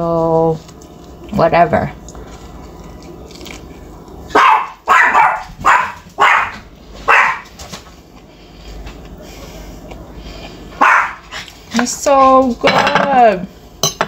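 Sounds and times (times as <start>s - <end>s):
dog barking: 4.3s - 7.5s, 10.8s - 11.2s.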